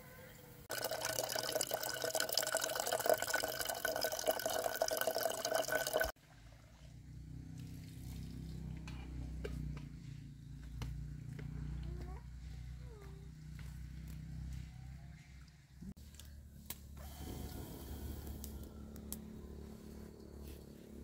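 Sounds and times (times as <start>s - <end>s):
water splashing into metal kettle: 0.7s - 6.1s.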